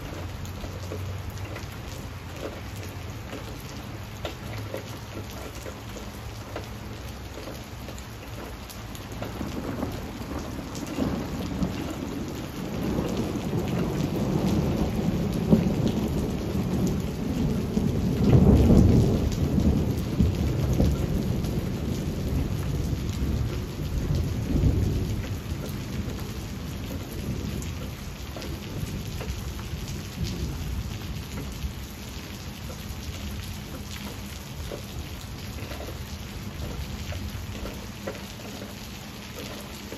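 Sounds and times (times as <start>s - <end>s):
rain falling on leaves: 0.0s - 39.9s
thunder rumbling: 8.5s - 39.9s.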